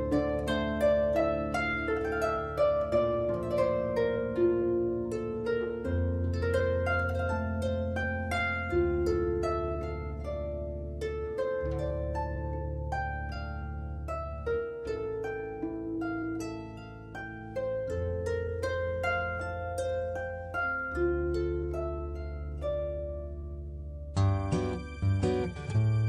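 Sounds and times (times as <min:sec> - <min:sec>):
plucked harp-like melody: 0:00.0 - 0:26.0
low bass notes: 0:21.7 - 0:26.0.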